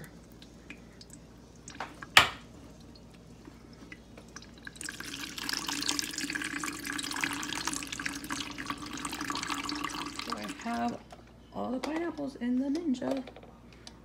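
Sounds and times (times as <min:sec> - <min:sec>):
juice pouring and splashing: 0:00.0 - 0:11.0.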